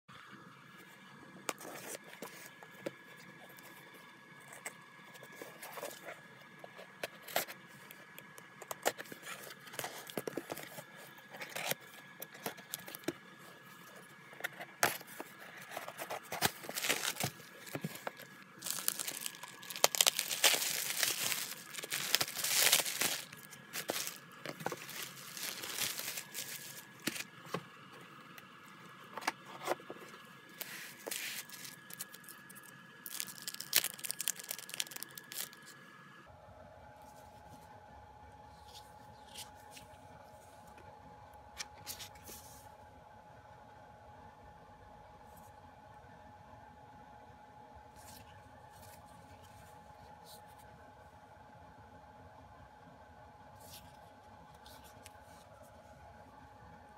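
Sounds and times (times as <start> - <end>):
bubble wrap crinkling: 14.8 - 27.5, 30.5 - 35.8
cardboard flaps rustling: 14.8 - 27.6.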